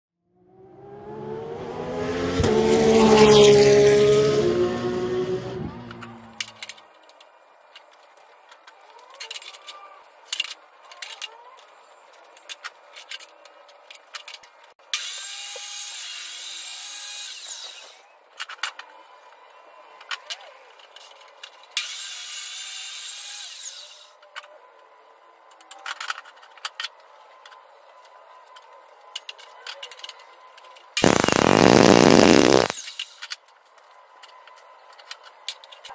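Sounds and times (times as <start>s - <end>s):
steady rasping noise: 31.0s - 32.8s.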